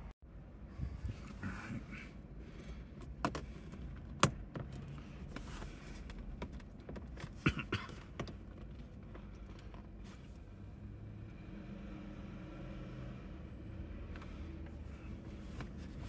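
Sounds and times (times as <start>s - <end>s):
gear shift knob clicks and knocks: 2.6s - 10.0s.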